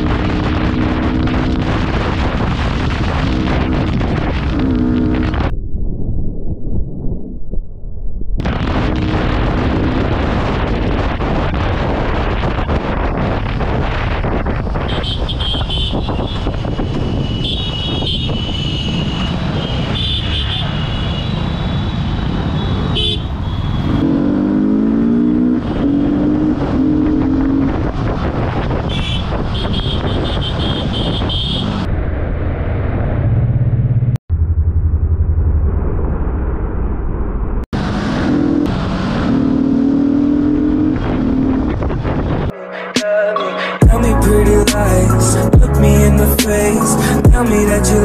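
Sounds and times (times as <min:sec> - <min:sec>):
wind and road noise: 0:00.0 - 0:43.1
vehicle horns honking: 0:14.8 - 0:24.0, 0:28.8 - 0:31.9.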